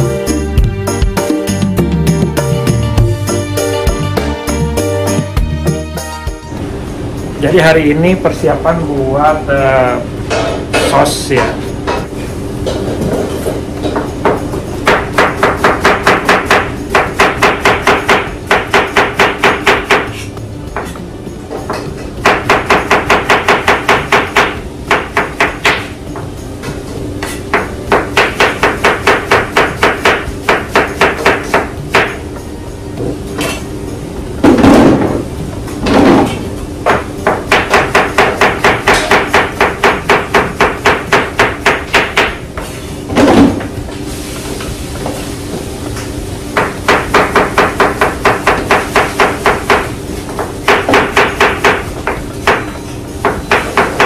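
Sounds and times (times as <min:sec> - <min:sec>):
knife chopping on cutting board: 0:13.9 - 0:20.9, 0:36.2 - 0:43.7.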